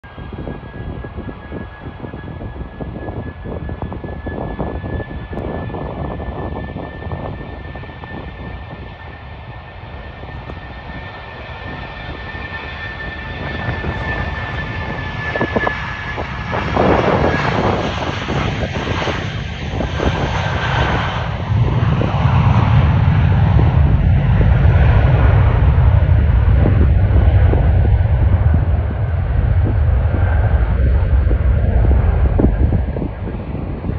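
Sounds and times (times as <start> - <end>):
jet engines at takeoff power: 0.0 - 33.9.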